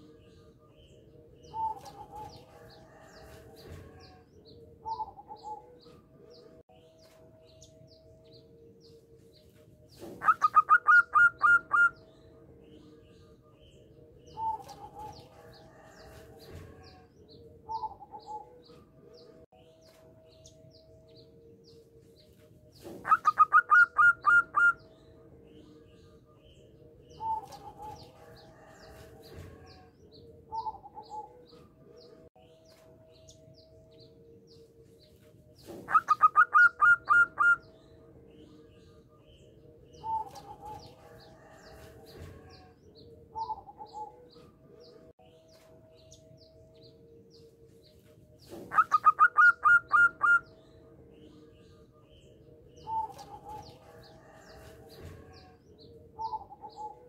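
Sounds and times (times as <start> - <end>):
dove cooing: 1.4 - 4.2, 4.8 - 5.9, 10.0 - 12.0, 14.3 - 18.7, 22.8 - 24.8, 30.5 - 31.5, 35.6 - 37.7, 39.9 - 42.7, 43.3 - 44.3, 48.4 - 50.5, 56.2 - 57.0.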